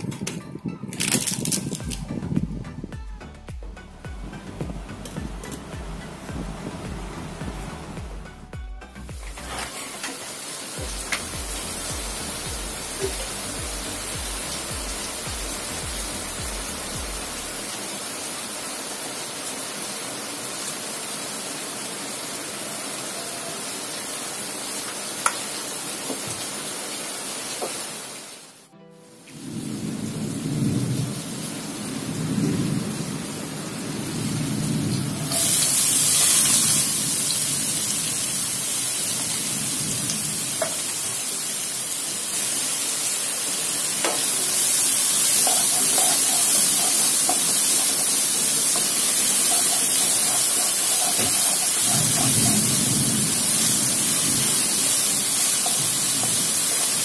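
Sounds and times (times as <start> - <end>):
onions sizzling in oil: 9.1 - 28.6, 31.0 - 57.0.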